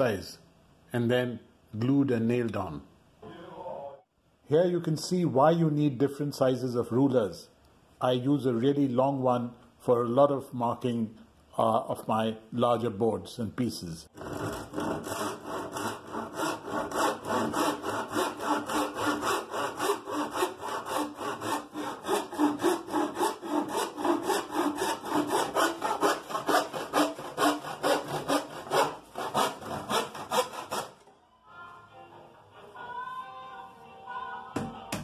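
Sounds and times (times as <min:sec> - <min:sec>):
handsaw cutting plywood: 0:14.2 - 0:31.0.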